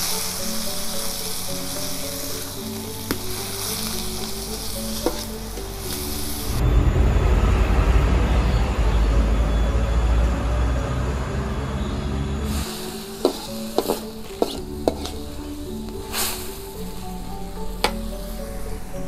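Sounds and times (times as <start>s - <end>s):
leaves sizzling in a wok: 0.0s - 9.6s, 11.6s - 19.0s
background music: 0.0s - 19.0s
loud low rumble: 6.4s - 12.6s.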